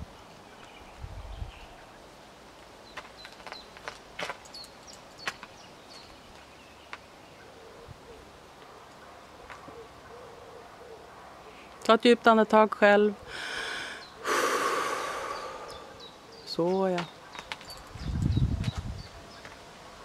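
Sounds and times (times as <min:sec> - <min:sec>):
horse hooves on gravel: 0:02.9 - 0:07.1.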